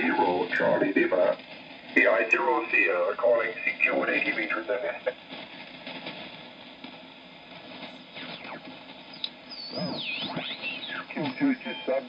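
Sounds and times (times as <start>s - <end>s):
mistuned radio voices: 0.0s - 1.4s, 2.0s - 5.2s, 7.9s - 12.0s
radio band hiss: 0.0s - 12.0s.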